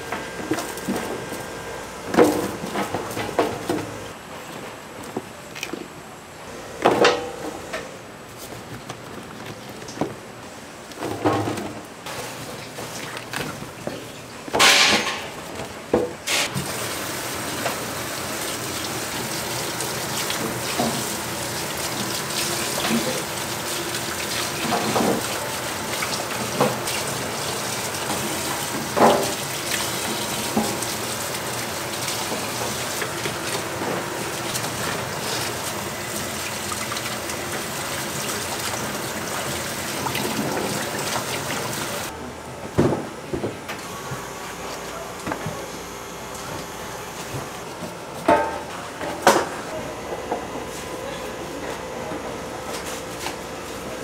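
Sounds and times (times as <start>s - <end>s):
oil sizzling in deep fryer: 16.3s - 42.1s.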